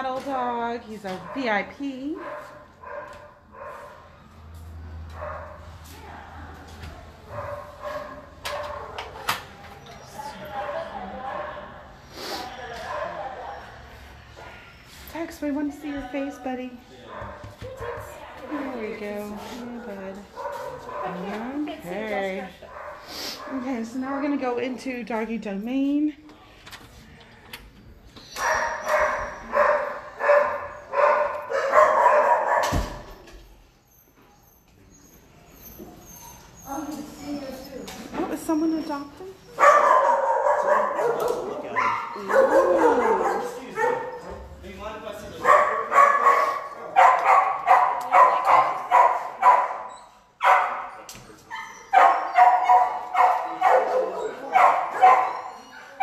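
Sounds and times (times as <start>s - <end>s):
dog barking: 1.2s - 1.6s, 2.2s - 4.0s, 5.1s - 5.6s, 7.3s - 9.5s, 10.5s - 11.8s, 12.8s - 13.4s, 19.7s - 21.5s, 22.7s - 23.7s, 28.4s - 33.1s, 39.6s - 44.3s, 45.4s - 56.0s
thump: 32.6s - 33.2s.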